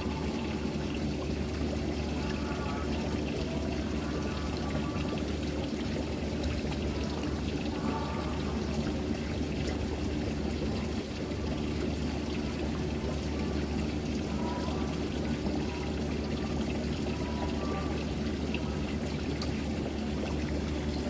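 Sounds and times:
low steady hum: 0:00.0 - 0:21.0
water pouring into a pond: 0:00.0 - 0:21.0.

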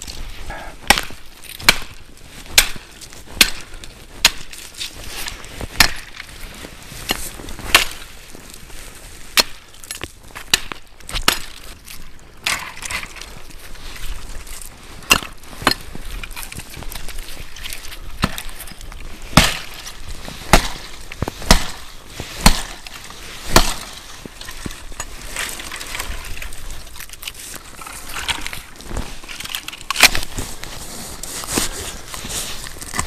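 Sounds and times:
hatchet chopping branch: 0:00.8 - 0:04.5, 0:05.7 - 0:06.3, 0:07.1 - 0:08.0, 0:09.3 - 0:09.7, 0:10.4 - 0:11.6, 0:15.1 - 0:15.8, 0:18.2 - 0:18.6, 0:19.3 - 0:24.8, 0:29.9 - 0:30.3.

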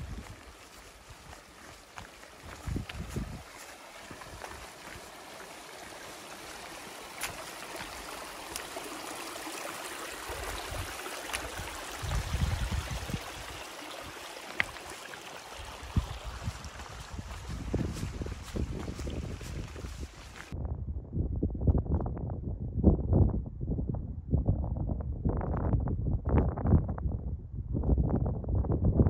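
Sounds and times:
wind buffeting microphone: 0:00.0 - 0:05.8, 0:10.0 - 0:14.9, 0:15.5 - 0:29.0
stream trickling over stones: 0:00.0 - 0:20.6.

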